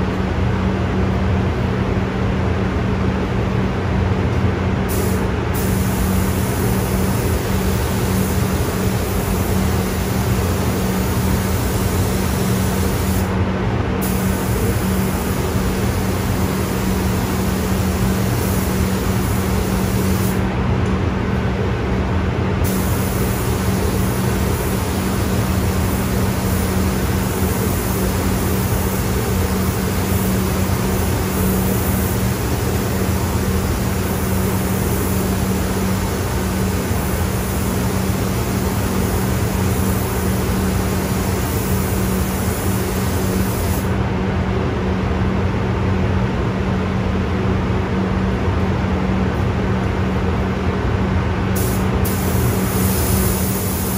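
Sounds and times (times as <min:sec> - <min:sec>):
paint spray gun hissing: 0:04.9 - 0:13.3, 0:14.0 - 0:20.4, 0:22.6 - 0:43.9, 0:51.6 - 0:53.9.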